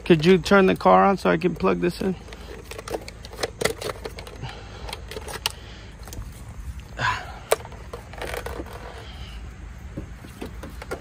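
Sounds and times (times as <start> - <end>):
tyre inflator clicks and rattles: 0.6 - 6.3, 7.3 - 9.2
low steady rumble: 4.0 - 11.0.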